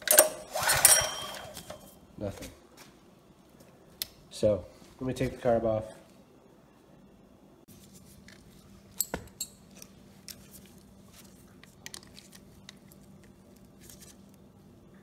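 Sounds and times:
faint steady hum: 0:00.0 - 0:15.0
metal socket clicking and clinking: 0:09.0 - 0:09.9.

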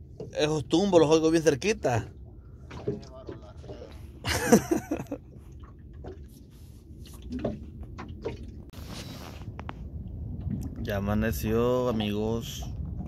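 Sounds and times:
low rumble: 0:00.0 - 0:13.0
water lapping against boat: 0:00.0 - 0:13.0
knocks and drips: 0:02.6 - 0:06.4, 0:07.1 - 0:08.7.

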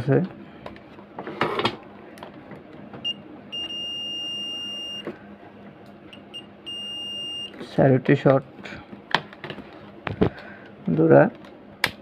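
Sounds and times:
multimeter continuity beeping: 0:03.0 - 0:05.1, 0:06.1 - 0:07.6.

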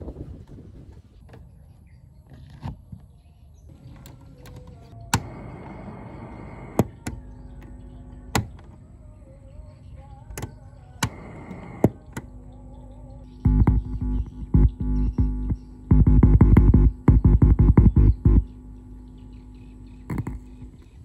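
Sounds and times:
radio static hiss: 0:03.7 - 0:09.0, 0:10.0 - 0:21.0
sharp clicks: 0:06.3 - 0:08.8, 0:10.3 - 0:12.3.

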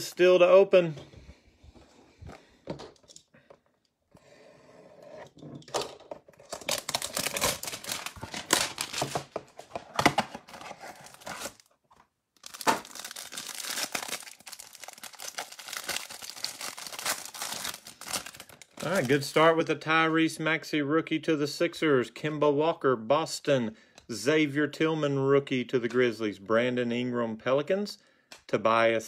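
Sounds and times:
plastic wrap crinkling: 0:06.5 - 0:09.8, 0:10.4 - 0:19.6
cardboard box tearing: 0:10.4 - 0:11.6.

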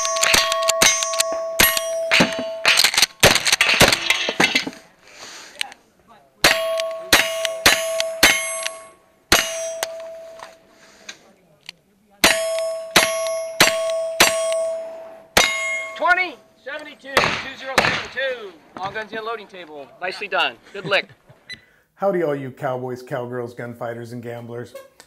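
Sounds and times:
steel plates ringing: 0:00.0 - 0:04.8, 0:06.4 - 0:10.7, 0:12.2 - 0:16.7.

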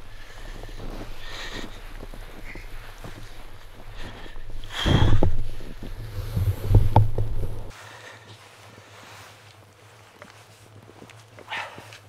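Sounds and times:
wind rumble on microphone: 0:00.0 - 0:07.7
footsteps crunching in snow: 0:00.0 - 0:12.0.

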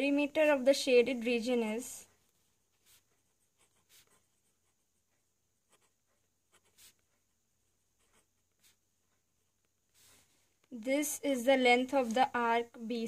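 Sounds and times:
pen scratching on paper: 0:02.8 - 0:07.2, 0:07.8 - 0:09.2.

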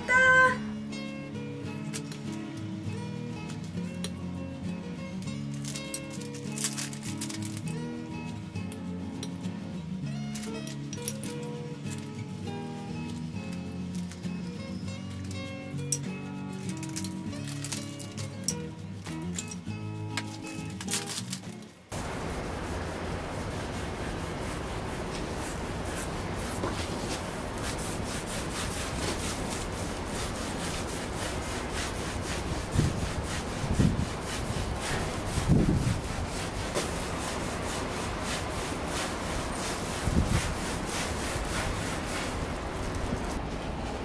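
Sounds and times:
cloth wiping a panel: 0:21.9 - 0:43.4.

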